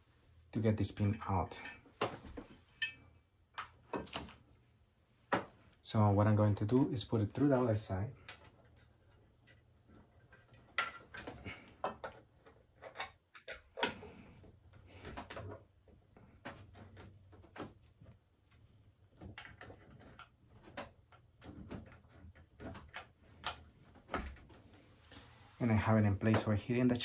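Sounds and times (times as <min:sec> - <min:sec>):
clicks and knocks of metal parts: 0:07.4 - 0:24.8.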